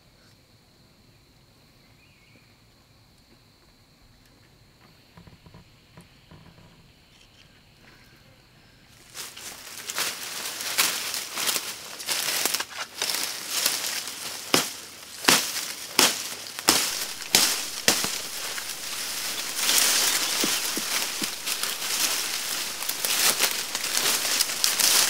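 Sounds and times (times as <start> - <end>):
leaves and brush rustling: 8.9 - 25.0
branches snapping: 9.7 - 25.0.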